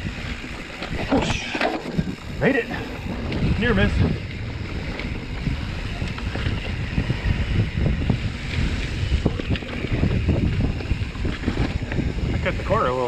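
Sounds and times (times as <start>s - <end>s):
bike clattering over bumps: 0.0s - 13.0s
wind buffeting microphone: 0.0s - 13.0s.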